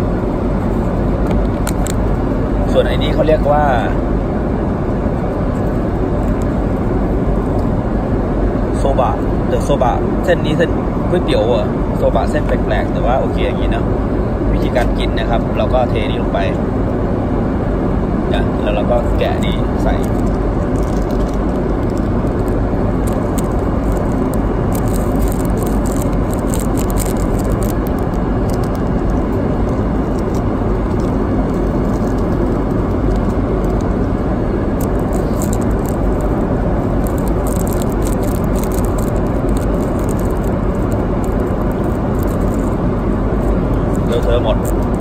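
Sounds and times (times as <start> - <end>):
airliner cabin noise: 0.0 - 45.0
plastic packet crinkling: 19.8 - 29.2, 30.1 - 33.9, 34.8 - 42.8, 43.4 - 45.0.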